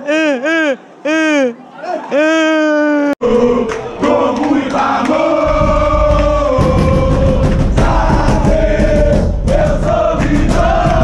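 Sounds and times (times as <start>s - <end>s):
crowd chanting and singing: 3.2s - 11.0s.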